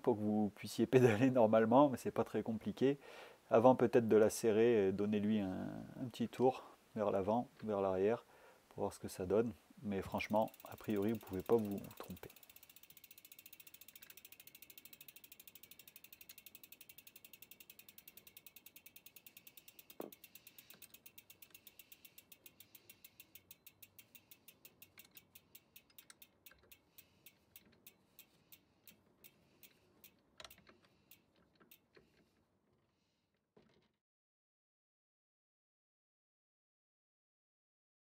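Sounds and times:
bike freehub ticking: 10.1s - 32.2s.

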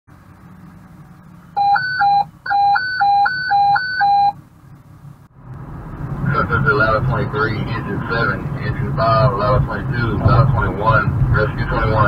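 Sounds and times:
alternating high-low alert beeps: 1.6s - 4.4s.

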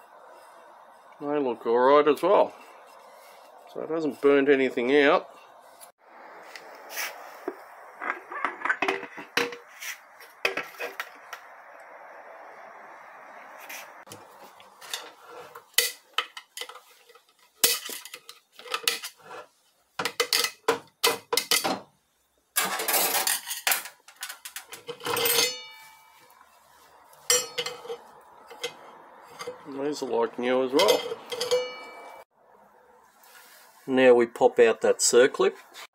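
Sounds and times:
metal clutch plates clinking: 27.2s - 29.7s, 30.7s - 32.2s.

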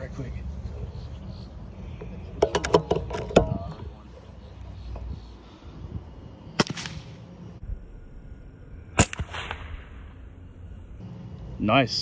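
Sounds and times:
voices: 0.0s - 6.2s, 11.0s - 12.0s
air rifle crack: 6.5s - 7.3s, 9.0s - 10.1s.

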